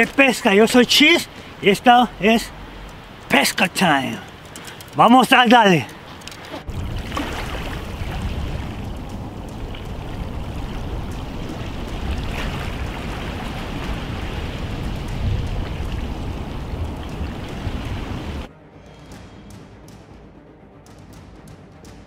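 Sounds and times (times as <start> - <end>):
waves breaking on shore: 0.0 - 18.5.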